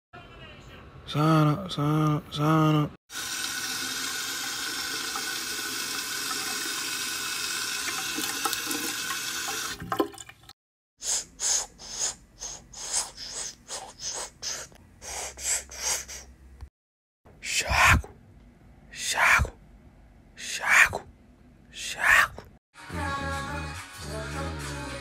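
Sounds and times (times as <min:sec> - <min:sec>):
water running from a tap: 0:03.1 - 0:10.5
short hissing bursts: 0:11.0 - 0:16.3.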